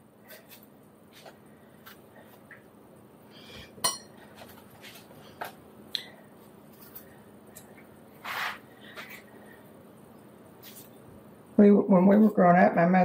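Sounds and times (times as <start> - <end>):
knife clink: 3.8 - 4.1.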